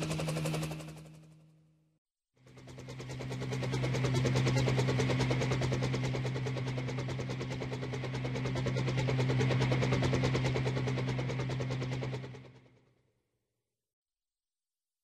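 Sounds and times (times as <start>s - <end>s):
toy helicopter rotors chopping: 0.0s - 1.2s.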